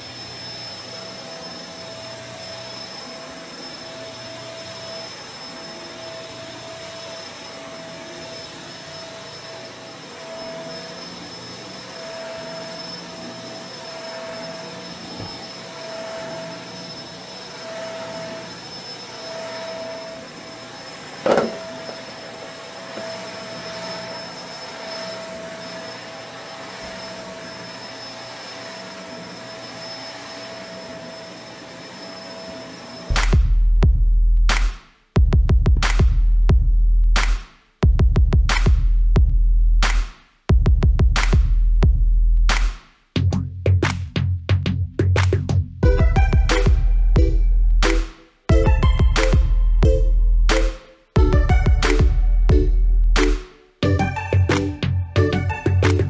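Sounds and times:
vacuum cleaner running on carpet: 0.0 - 33.5, 45.8 - 56.0.

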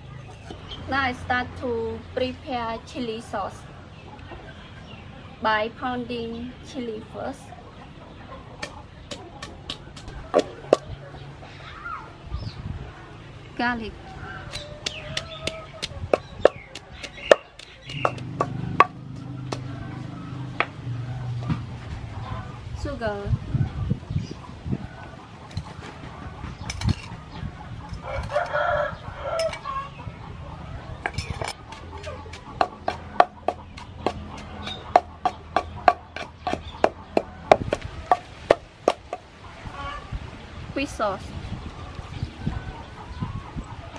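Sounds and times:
pestle pounding in mortar: 14.5 - 19.7, 31.1 - 39.2.

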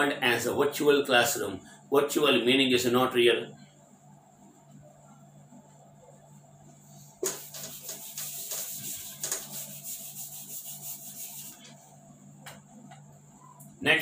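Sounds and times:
eraser rubbing on whiteboard: 7.1 - 11.8.

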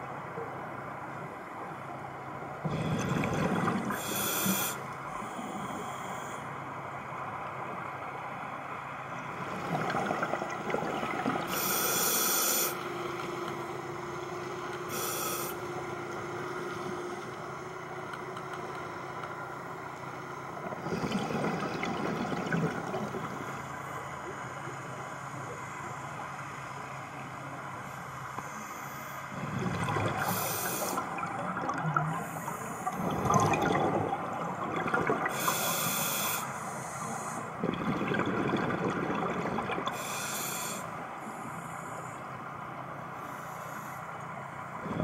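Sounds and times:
steady background hum: 0.0 - 45.0
bubbling exhales: 2.6 - 5.8, 20.8 - 23.3, 29.3 - 36.2, 37.5 - 40.8
hissing regulator inhales: 3.9 - 6.5, 11.5 - 12.8, 14.9 - 15.6, 30.2 - 31.1, 35.3 - 37.5, 39.9 - 42.2.

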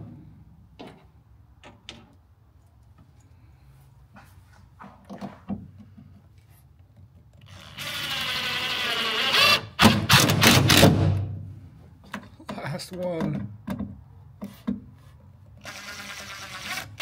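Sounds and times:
drill motor whining: 7.5 - 10.3.

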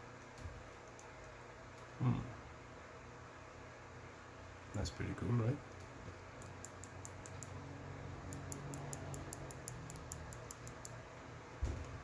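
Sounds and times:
low steady hum: 0.0 - 12.0
rapid high-pitched ticking: 8.3 - 11.0.

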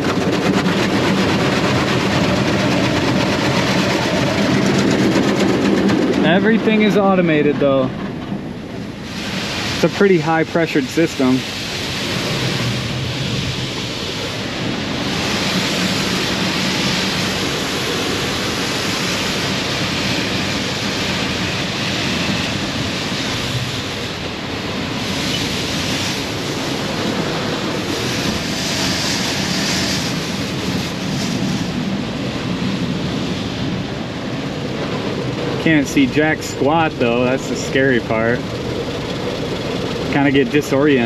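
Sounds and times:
high-pressure water jets spraying: 8.9 - 41.0.

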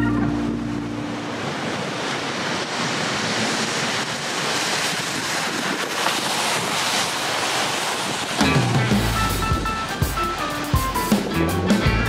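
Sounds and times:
steady rushing noise: 0.0 - 12.0.

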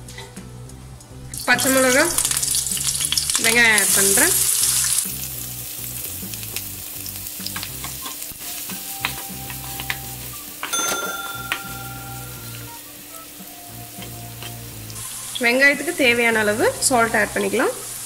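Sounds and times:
onion sizzling in hot oil: 1.3 - 18.0
spatula stirring and knocking pan: 7.4 - 12.8, 13.4 - 14.8.

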